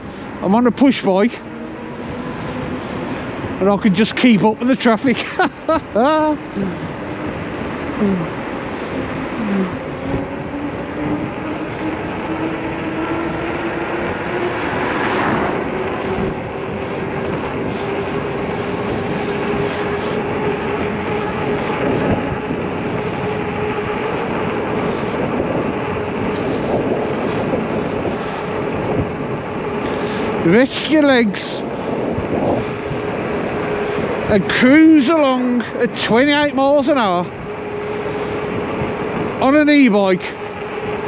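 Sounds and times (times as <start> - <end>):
road and wind noise: 0.0 - 41.0.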